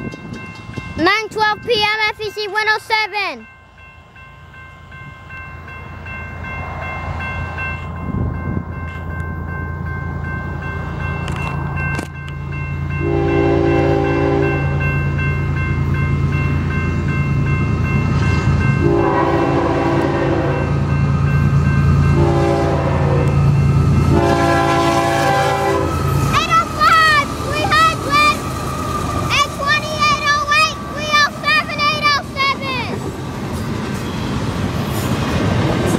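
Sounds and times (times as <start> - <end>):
crossing bell ringing: 0.0 - 35.9
diesel locomotive engine drone: 0.0 - 35.9
train air horn blasts: 13.0 - 14.8, 18.8 - 20.8, 22.1 - 23.4, 24.1 - 26.1.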